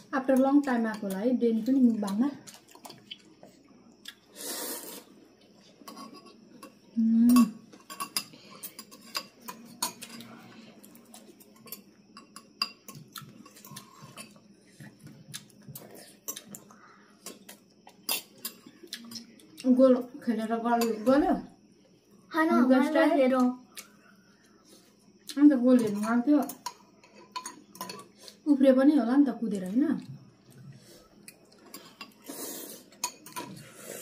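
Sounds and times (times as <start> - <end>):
cutlery clinking on ceramic bowls: 5.8 - 10.3, 11.6 - 14.4, 25.8 - 28.2, 33.0 - 33.6.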